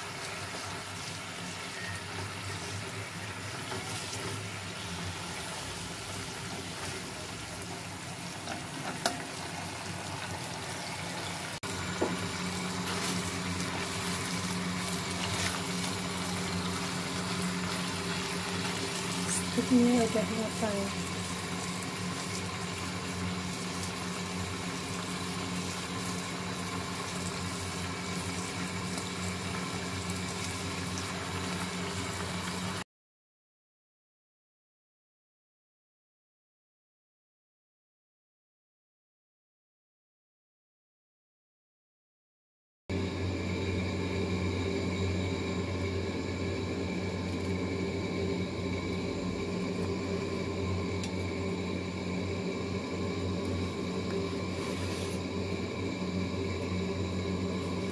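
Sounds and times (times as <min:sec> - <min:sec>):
machine hum with held tones: 0:00.0 - 0:32.8, 0:42.9 - 0:57.9
sauce bubbling and sizzling: 0:00.0 - 0:32.8, 0:42.9 - 0:57.9
steady low hum: 0:42.9 - 0:57.9.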